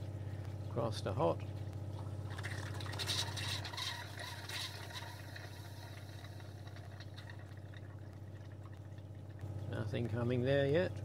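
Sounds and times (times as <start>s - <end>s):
water pump humming: 0.0s - 11.0s
water splashing into a metal sink: 2.3s - 9.4s.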